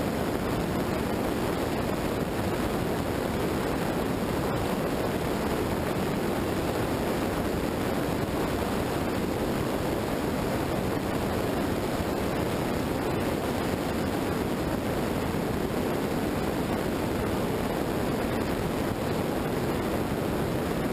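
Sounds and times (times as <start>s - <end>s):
wind over microphone: 0.0s - 20.9s.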